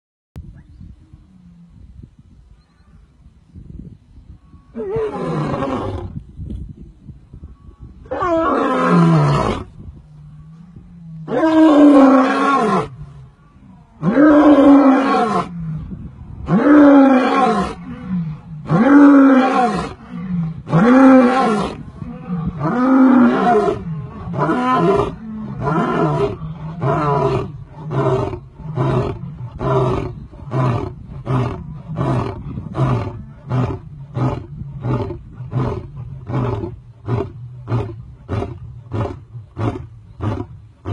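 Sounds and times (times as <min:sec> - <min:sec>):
lion roaring: 0:10.5 - 0:40.9.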